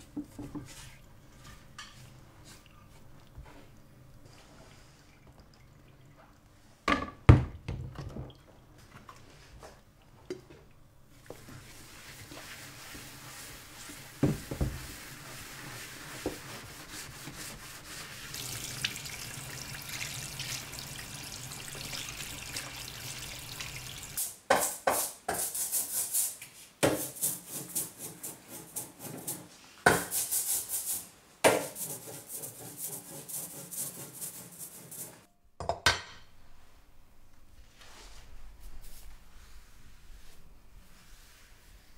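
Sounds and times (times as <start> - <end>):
loud rubbing strokes: 31.8 - 35.3.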